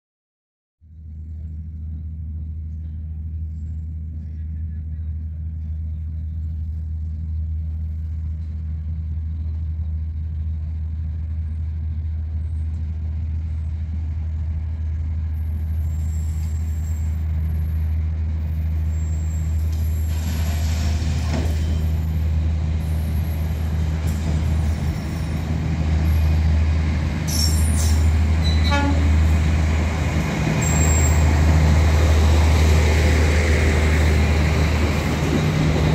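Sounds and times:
diesel locomotive idling hum: 0:00.8 - 0:35.9
diesel railcar passing: 0:00.8 - 0:35.9.

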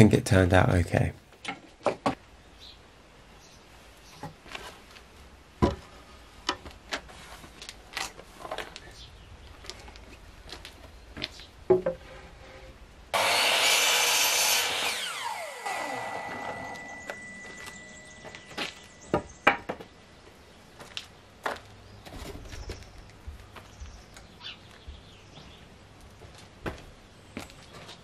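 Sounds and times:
wooden timbers knocked and handled: 0:01.4 - 0:02.2, 0:05.6 - 0:07.1, 0:11.2 - 0:12.3, 0:18.2 - 0:19.9
mitre saw cutting timber: 0:13.1 - 0:17.9
saw motor winding down whine: 0:13.2 - 0:18.5.

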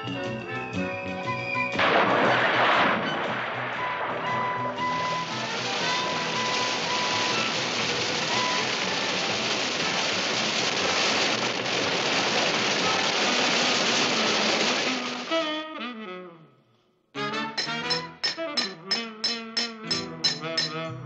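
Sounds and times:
plucked notes: 0:17.6 - 0:20.9.

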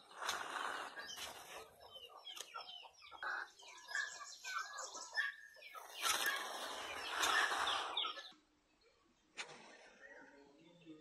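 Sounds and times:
turkeys clucking: 0:00.1 - 0:08.4.

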